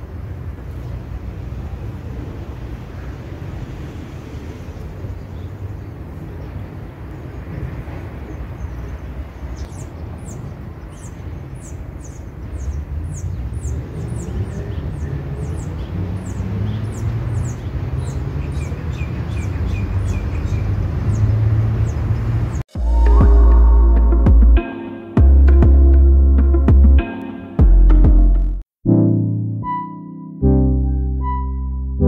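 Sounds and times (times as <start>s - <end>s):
birds chirping: 4.7s - 22.6s
low rumble: 22.8s - 24.6s.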